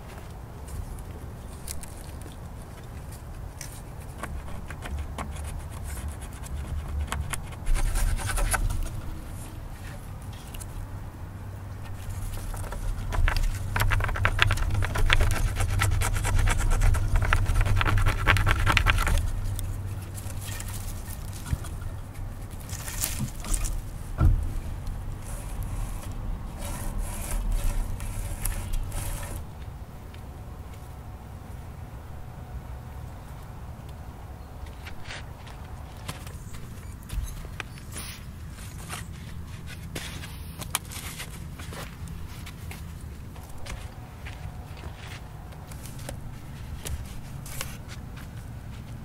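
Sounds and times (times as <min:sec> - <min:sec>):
rope rasping against wood: 0:03.6 - 0:10.6, 0:11.8 - 0:23.9, 0:25.0 - 0:29.5.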